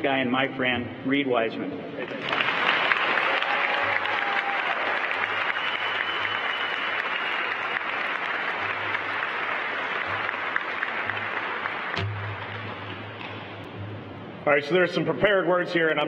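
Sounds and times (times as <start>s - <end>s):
audience applauding: 2.1s - 13.0s.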